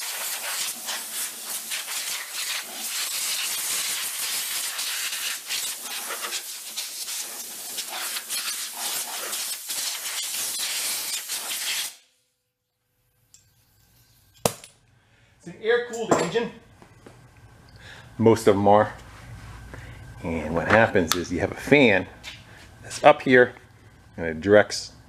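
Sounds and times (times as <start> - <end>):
pressurised spray hissing: 0.0 - 12.1.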